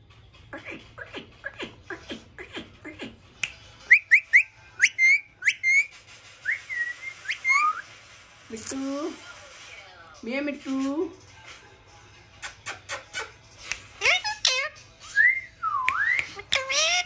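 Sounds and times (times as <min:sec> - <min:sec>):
parakeet squeaky chirps: 0:00.6 - 0:03.2, 0:03.9 - 0:06.0, 0:06.7 - 0:07.9, 0:12.4 - 0:14.9, 0:16.2 - 0:17.0
parakeet whistled notes: 0:03.9 - 0:07.9.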